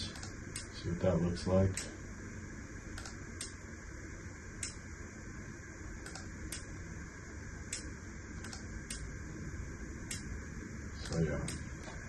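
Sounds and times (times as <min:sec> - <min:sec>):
steady low hum: 0:00.0 - 0:12.0
computer mouse clicking: 0:03.0 - 0:03.6, 0:06.0 - 0:06.7, 0:07.7 - 0:09.1, 0:11.0 - 0:12.0.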